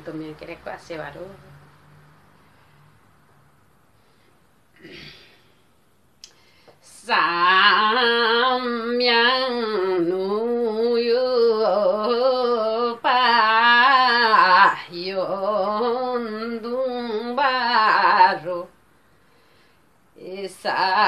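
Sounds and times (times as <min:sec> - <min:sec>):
woman singing unaccompanied: 0:06.8 - 0:18.8, 0:20.2 - 0:21.0.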